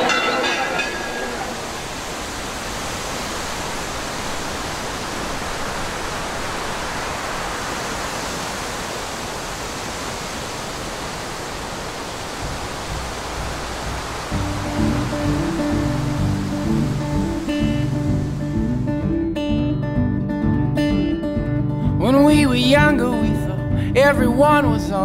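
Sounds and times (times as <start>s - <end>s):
wind rushing: 1.5s - 20.0s.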